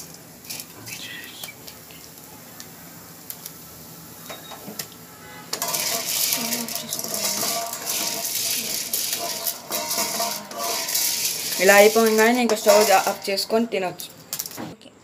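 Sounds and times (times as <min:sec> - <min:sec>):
grains rattling in covered metal pan: 0:00.0 - 0:00.8, 0:05.5 - 0:14.6.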